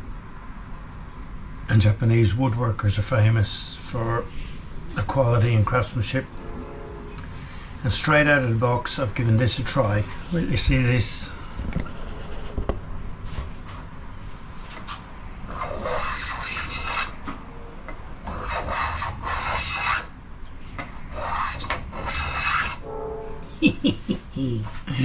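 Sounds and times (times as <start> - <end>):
hand plane shaving wood: 15.5 - 17.2, 18.3 - 20.1, 21.0 - 22.8.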